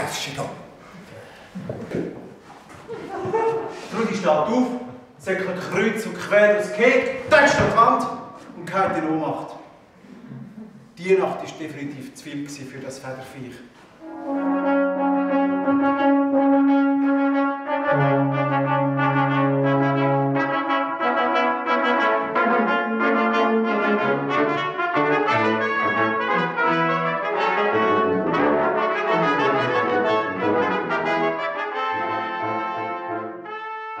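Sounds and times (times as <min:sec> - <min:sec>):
brass quintet playing: 0:14.0 - 0:34.0.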